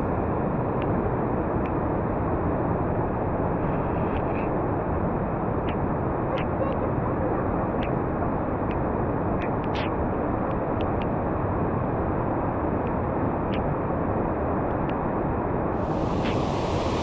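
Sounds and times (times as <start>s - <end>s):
rushing river roar: 11.2s - 17.0s.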